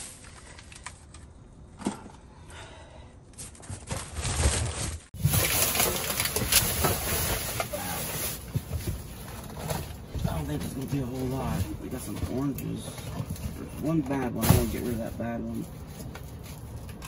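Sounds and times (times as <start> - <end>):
cardboard and plastic packaging rustling: 3.4 - 17.0.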